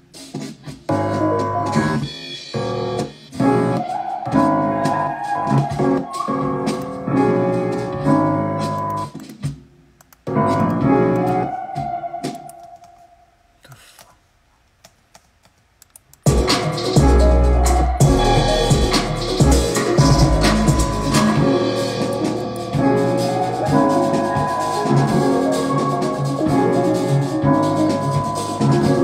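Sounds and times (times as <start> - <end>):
melodic keys loop: 0.9 - 9.2, 10.3 - 13.0, 16.3 - 29.0
beat with heavy deep bass: 16.3 - 25.3.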